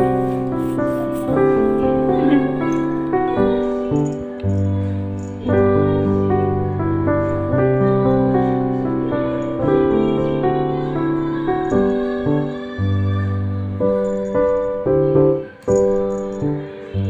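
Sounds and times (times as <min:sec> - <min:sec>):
slow instrumental music: 0:00.0 - 0:17.0.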